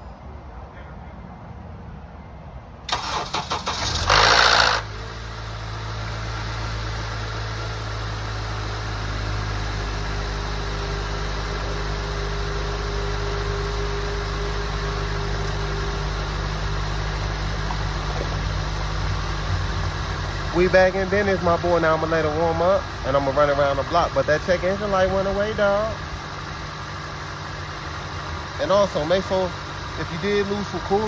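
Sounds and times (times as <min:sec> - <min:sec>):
engine starter cranking: 0:02.9 - 0:04.9
car engine revving and idling: 0:03.0 - 0:31.0.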